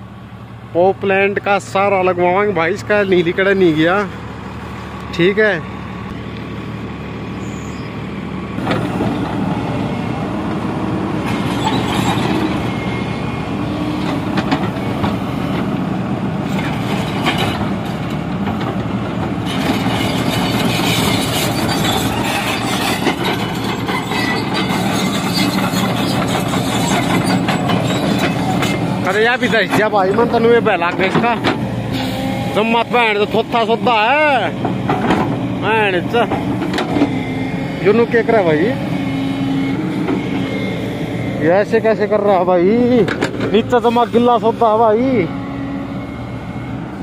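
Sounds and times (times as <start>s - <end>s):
diesel earthmover engine rattling: 0.0s - 47.0s
machinery squeaks: 7.3s - 8.0s, 11.3s - 15.0s, 19.5s - 34.1s.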